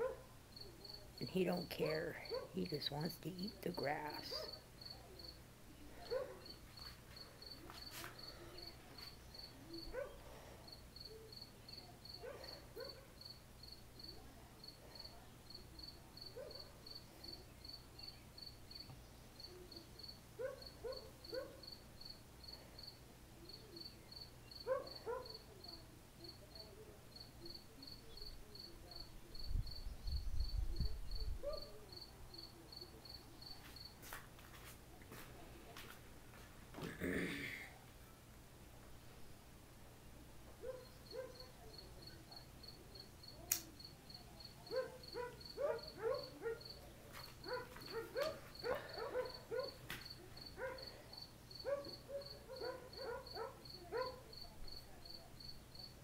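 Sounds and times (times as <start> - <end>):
cricket chirping: 10.7 - 34.0, 40.7 - 46.8, 47.5 - 56.0.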